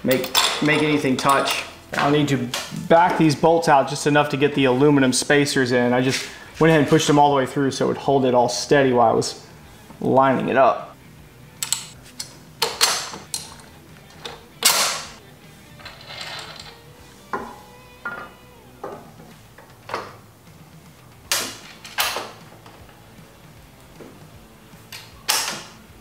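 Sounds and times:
metal bar and bolts clinking: 0:00.0 - 0:02.7, 0:11.6 - 0:15.2, 0:15.8 - 0:16.8.

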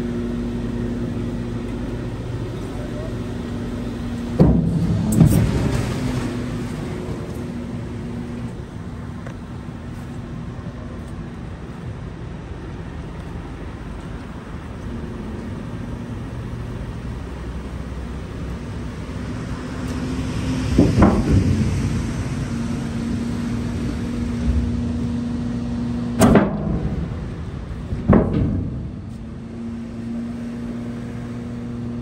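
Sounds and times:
truck engine humming: 0:00.0 - 0:32.0
loud metal clank: 0:04.4 - 0:06.2, 0:26.2 - 0:29.5.

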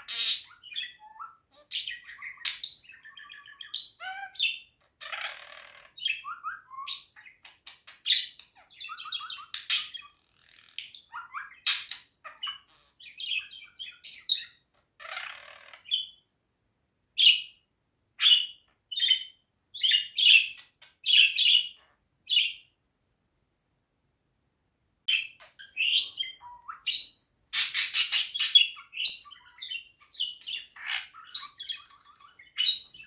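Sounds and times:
budgerigar chattering: 0:00.0 - 0:07.4, 0:25.1 - 0:33.0
sharp bird chirps: 0:25.1 - 0:33.0.

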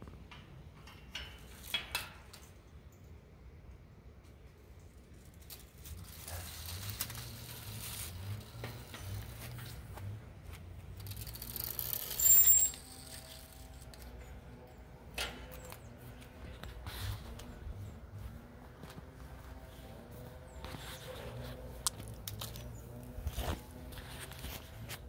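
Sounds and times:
rustling and handling noise: 0:04.2 - 0:25.0
high metallic ring: 0:11.7 - 0:13.8.

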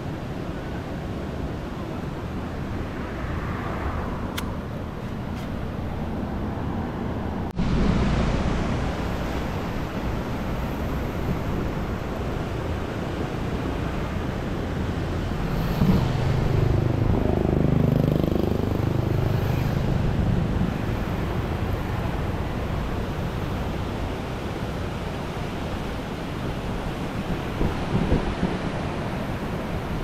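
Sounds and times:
wind: 0:00.0 - 0:30.0
fast-flowing water: 0:07.6 - 0:17.8, 0:18.6 - 0:30.0.

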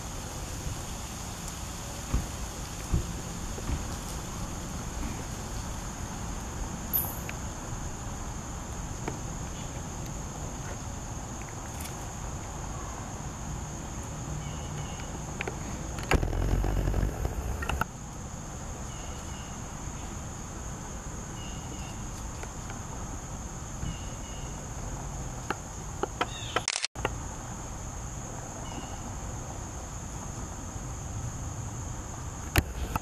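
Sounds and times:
insects droning: 0:00.0 - 0:33.0
clicks: 0:16.0 - 0:17.8
loud low noise: 0:16.0 - 0:17.8.

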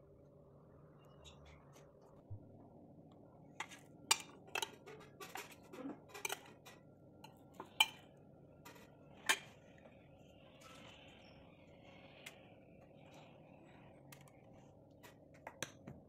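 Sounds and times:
metal spoon clinking on plates: 0:03.6 - 0:08.1, 0:08.7 - 0:09.6.

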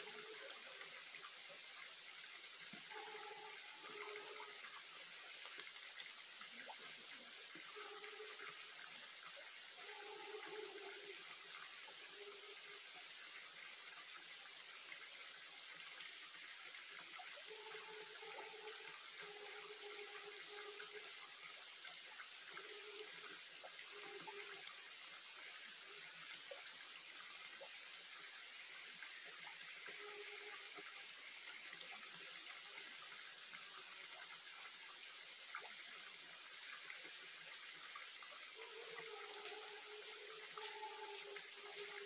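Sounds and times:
stream water rushing: 0:00.0 - 0:12.8
high-pitched insect drone: 0:27.6 - 0:42.0.

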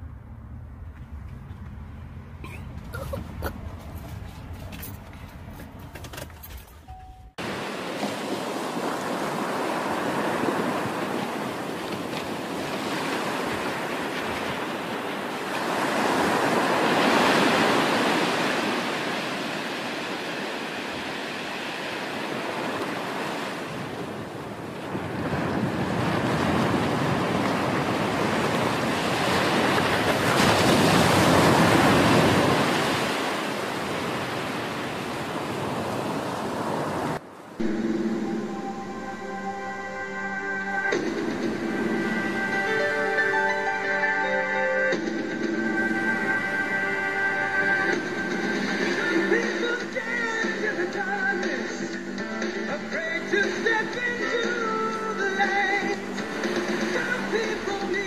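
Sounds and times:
low car cabin rumble: 0:00.0 - 0:07.5
ocean waves breaking: 0:07.3 - 0:58.0.

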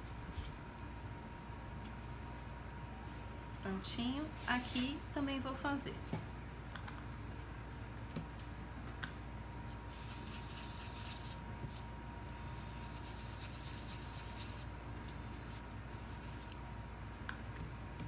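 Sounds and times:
brush scrubbing on foam: 0:09.9 - 0:11.8, 0:12.4 - 0:14.7.

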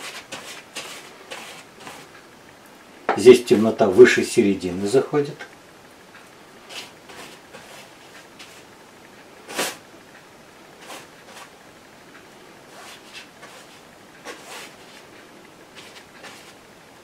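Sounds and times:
brush scratching on canvas: 0:00.0 - 0:02.1, 0:06.6 - 0:08.7, 0:09.5 - 0:09.8, 0:10.8 - 0:11.6, 0:12.7 - 0:16.8.

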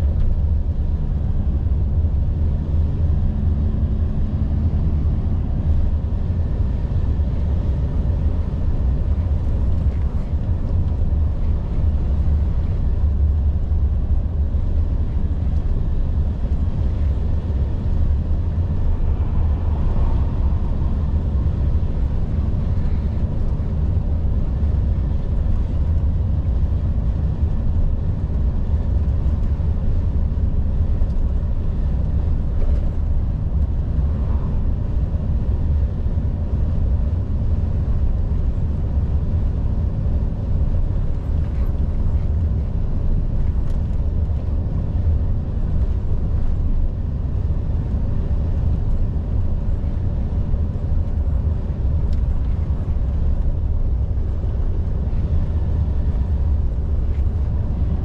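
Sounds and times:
diesel truck engine droning: 0:00.0 - 0:58.0.

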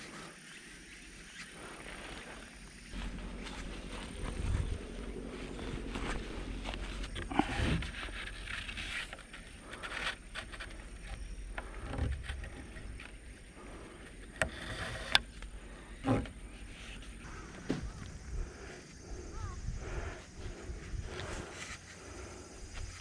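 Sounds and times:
rope rustling and rubbing: 0:02.9 - 0:17.3.

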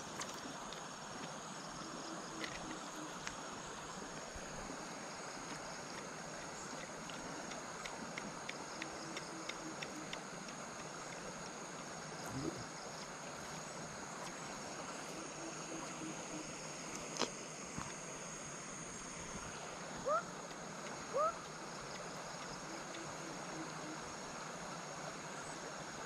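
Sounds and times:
stream water flowing: 0:00.0 - 0:26.0
faint ticks: 0:00.1 - 0:03.4, 0:05.3 - 0:14.5, 0:20.1 - 0:24.0.

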